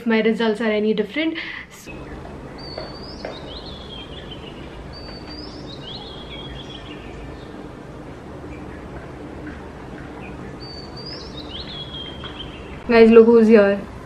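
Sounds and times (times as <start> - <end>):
steady background hiss: 0.0 - 14.0
bird chirping: 1.9 - 13.1.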